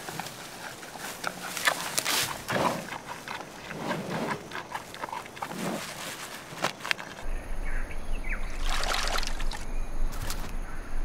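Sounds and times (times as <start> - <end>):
panda crunching bamboo: 0.0 - 7.2
leaves rustling: 0.0 - 7.5, 8.2 - 10.8.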